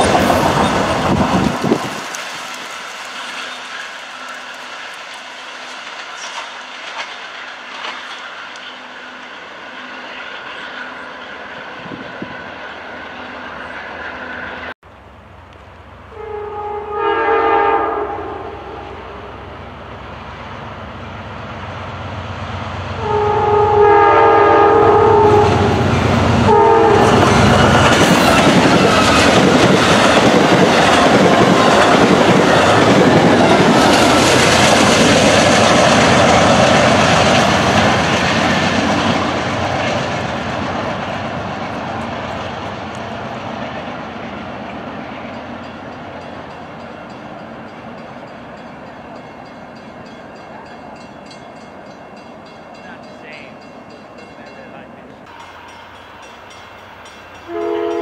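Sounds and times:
train passing with wheel noise: 0.0 - 58.0
train horn blasts: 16.1 - 19.5, 22.9 - 29.5, 57.4 - 58.0.

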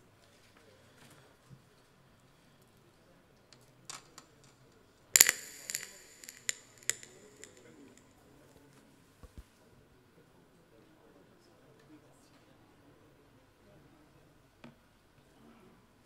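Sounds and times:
sharp clicks: 5.2 - 8.0.

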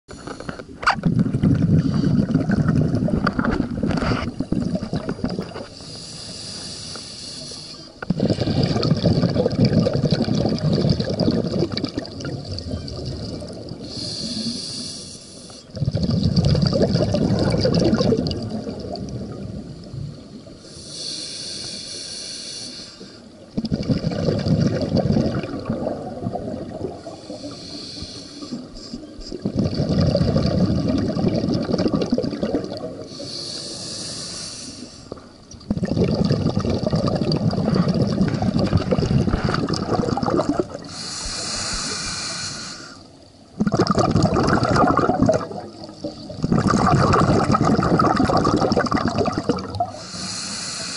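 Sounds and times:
regulator inhale hissing: 0.1 - 0.7, 5.7 - 8.8, 13.8 - 15.8, 20.6 - 23.4, 27.0 - 29.1, 33.1 - 35.4, 40.8 - 43.2, 49.9 - 50.9
exhaled air bubbling: 0.2 - 21.8, 23.1 - 50.9.

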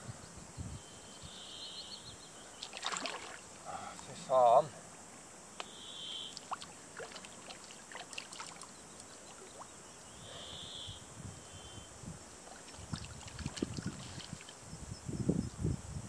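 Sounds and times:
water sloshing and splashing: 2.6 - 4.2, 6.4 - 9.7, 12.4 - 14.5.

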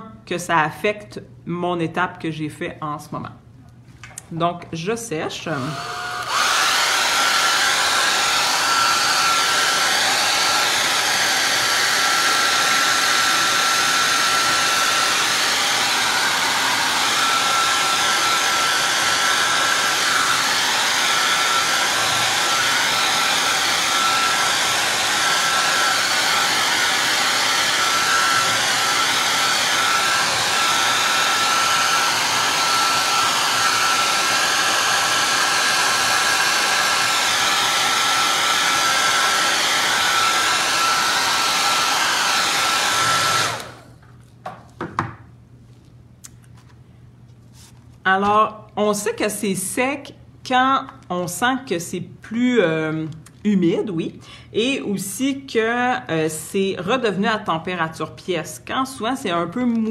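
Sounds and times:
hair dryer running: 5.2 - 44.0.

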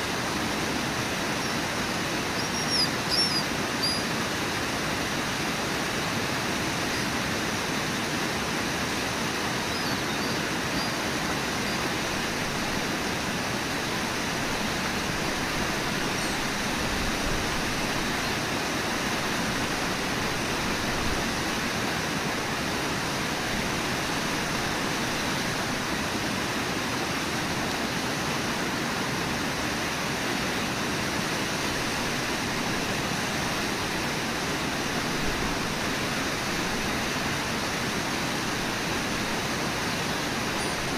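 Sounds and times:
river rushing over rapids: 0.0 - 40.9.

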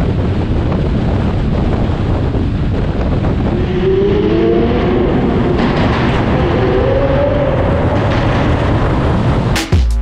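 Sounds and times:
road and wind noise: 0.0 - 9.8
car engine accelerating: 3.0 - 9.5.

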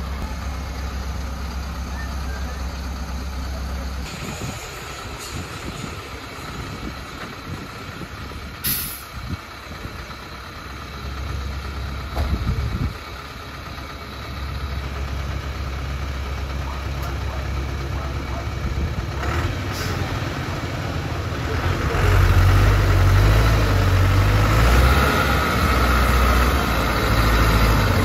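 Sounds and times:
diesel truck engine under load: 0.0 - 28.0
air hissing: 8.6 - 9.1.

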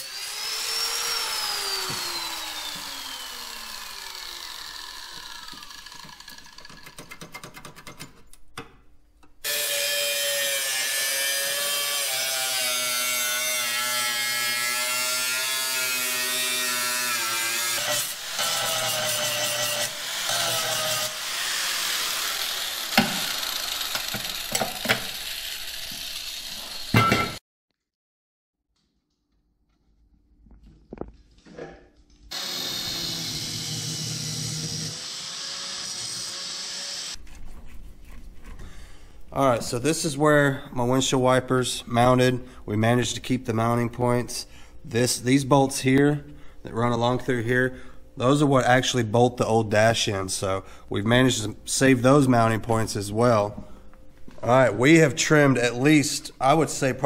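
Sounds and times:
power tool whining: 0.0 - 7.0, 14.3 - 27.4, 32.3 - 37.2.

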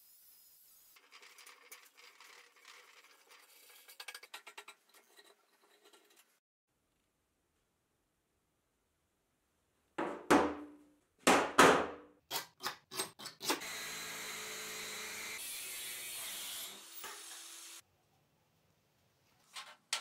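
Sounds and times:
angle grinder cutting steel: 13.5 - 17.8.

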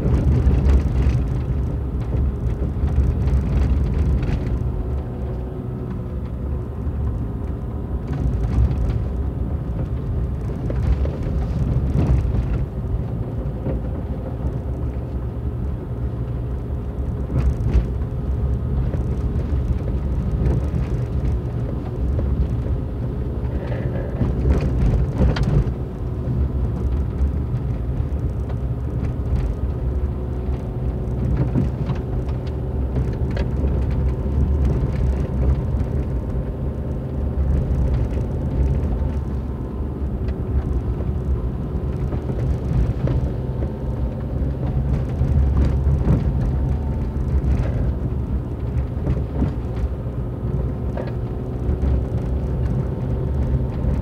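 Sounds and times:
car engine and tyre rumble: 0.0 - 54.0
knocks and rattles from bumps: 17.2 - 22.8, 23.4 - 39.4, 40.2 - 54.0.

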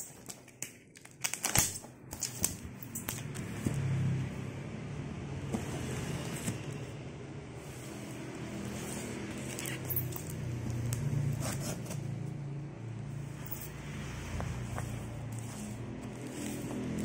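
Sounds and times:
cardboard box scraping on glass: 15.3 - 17.0.

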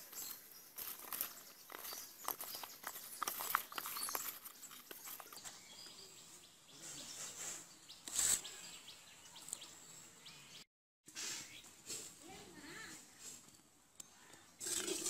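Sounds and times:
faint outdoor background: 0.0 - 15.0.

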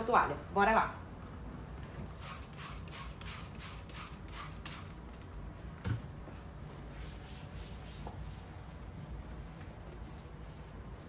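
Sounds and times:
paper towel rubbing: 6.3 - 11.0.

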